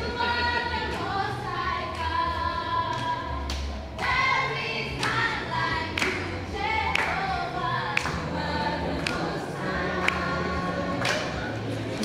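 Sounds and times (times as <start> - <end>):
group singing: 0.0 - 12.0
hand claps: 2.9 - 4.2, 5.0 - 5.3, 5.9 - 7.3, 7.9 - 8.3, 9.0 - 9.4, 10.0 - 11.5.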